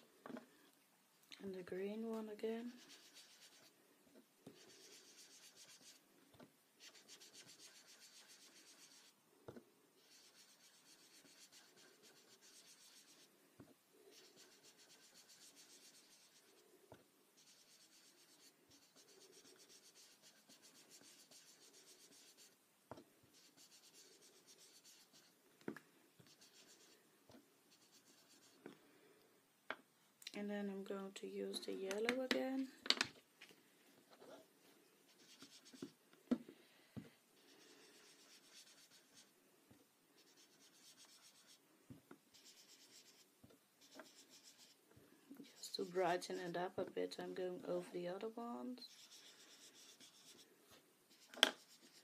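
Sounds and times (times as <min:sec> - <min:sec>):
foam dauber rubbing on card: 0:04.6 - 0:06.0, 0:06.8 - 0:09.2, 0:10.0 - 0:13.3, 0:14.1 - 0:16.6, 0:48.8 - 0:50.4.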